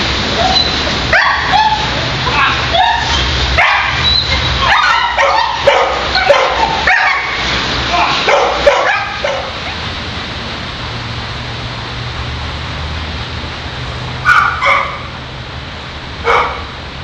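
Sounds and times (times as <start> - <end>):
dog barking: 1.1 - 1.9, 2.8 - 7.4, 8.3 - 9.7, 14.2 - 15.1, 16.2 - 16.7.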